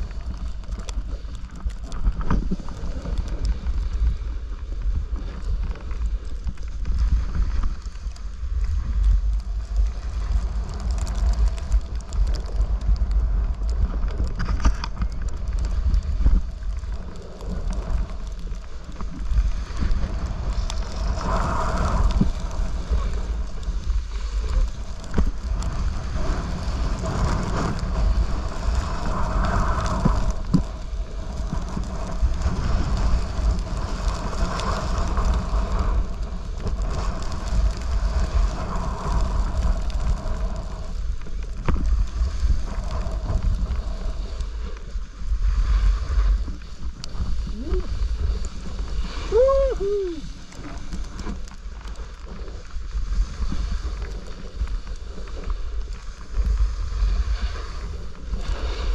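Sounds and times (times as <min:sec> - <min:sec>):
snowboard scraping over snow: 0:00.0 - 0:58.9
wind rumbling on microphone: 0:00.0 - 0:58.9.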